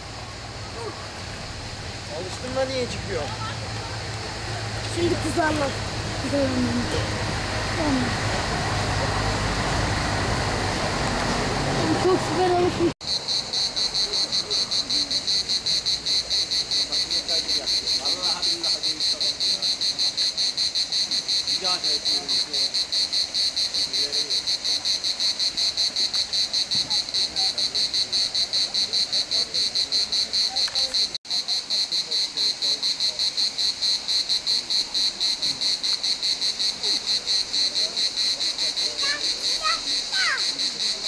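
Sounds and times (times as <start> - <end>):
insects chirping shrilly: 13.0 - 41.0.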